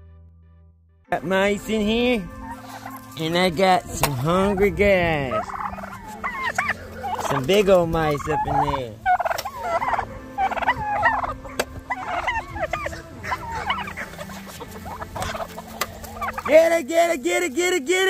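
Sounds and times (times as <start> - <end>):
chickens clucking: 1.8 - 17.4.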